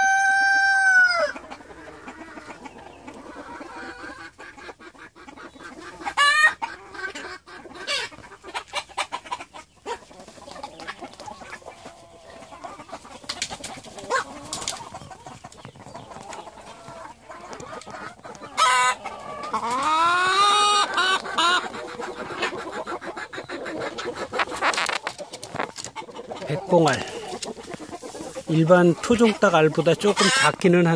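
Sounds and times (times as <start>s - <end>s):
rooster crowing: 0.0s - 1.4s
chickens clucking: 0.0s - 30.9s.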